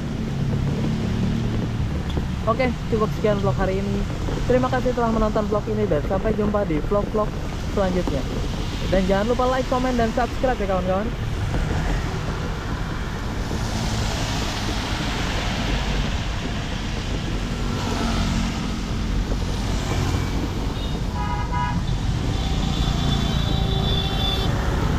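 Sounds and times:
road traffic: 0:00.0 - 0:24.9
vehicle horn toot: 0:20.8 - 0:24.5.

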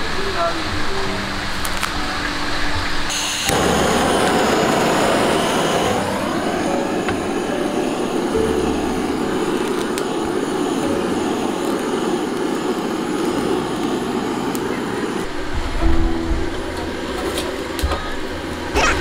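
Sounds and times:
gas torch flame rushing: 0:03.1 - 0:15.8.

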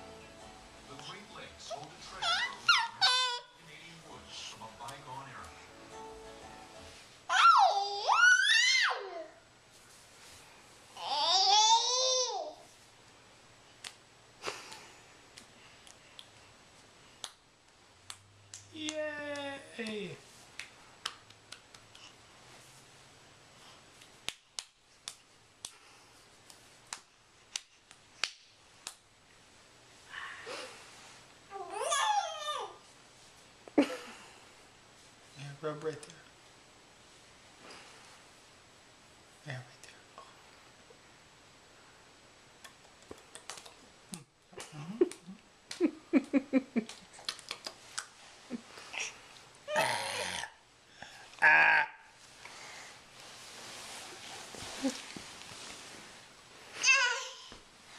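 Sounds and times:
baby murmuring: 0:01.7 - 0:03.6, 0:49.7 - 0:50.6
baby clapping hands: 0:18.0 - 0:20.0, 0:20.6 - 0:22.0, 0:24.2 - 0:25.8, 0:42.8 - 0:43.8
hands patting a head: 0:18.0 - 0:22.0, 0:23.9 - 0:29.0.

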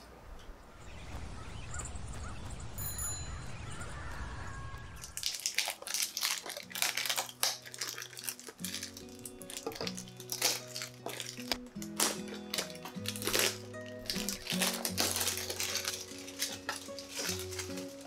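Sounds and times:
distant city hum: 0:00.0 - 0:05.2
plastic bottle crinkling: 0:05.0 - 0:18.0.

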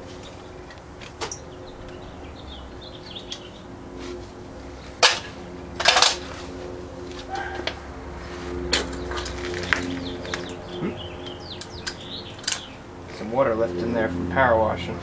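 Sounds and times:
metal tools clanking: 0:00.2 - 0:02.1, 0:05.0 - 0:06.4, 0:08.7 - 0:10.8, 0:11.6 - 0:12.8.

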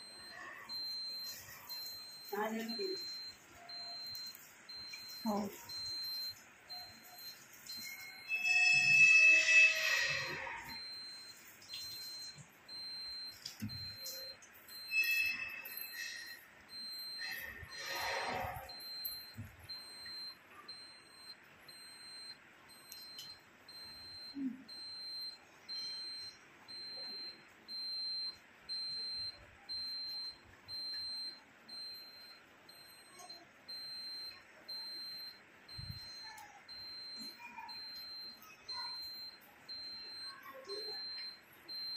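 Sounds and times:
high-pitched electronic beep: 0:00.0 - 0:22.3.

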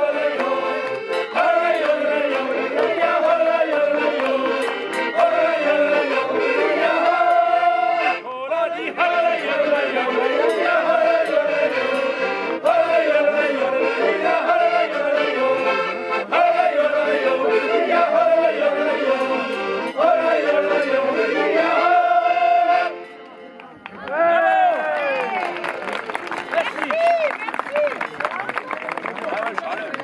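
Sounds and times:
group singing folk song: 0:00.0 - 0:23.2
button accordions: 0:00.0 - 0:23.9.

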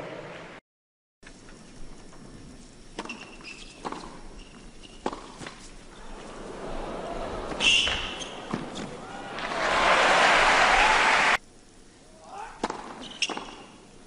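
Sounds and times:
tennis ball bouncing: 0:03.0 - 0:04.2, 0:05.0 - 0:05.7, 0:07.4 - 0:09.5, 0:12.6 - 0:13.6
shoes squeaking on court: 0:03.0 - 0:06.4, 0:07.5 - 0:09.0, 0:12.7 - 0:13.8
tennis ball hit: 0:07.5 - 0:09.6, 0:12.6 - 0:13.6.

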